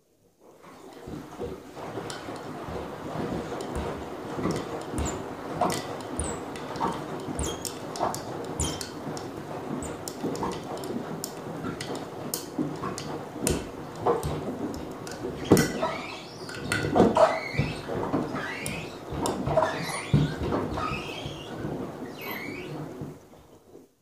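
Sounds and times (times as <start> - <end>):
water sloshing in washing machine drum: 0.7 - 23.2
sandals knocking against drum: 2.8 - 15.8
short squeaks: 5.0 - 7.8, 15.4 - 22.8.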